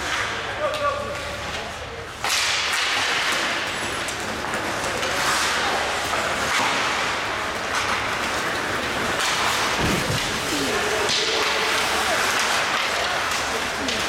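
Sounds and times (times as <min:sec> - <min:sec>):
hockey sticks hitting puck: 0:00.0 - 0:14.0
skates scraping ice: 0:00.0 - 0:14.0.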